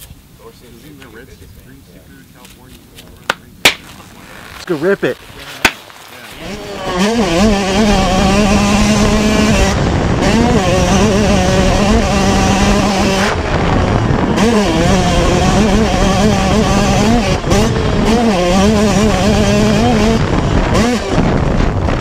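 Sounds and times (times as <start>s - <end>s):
two-stroke motocross engine revving: 6.2s - 22.0s.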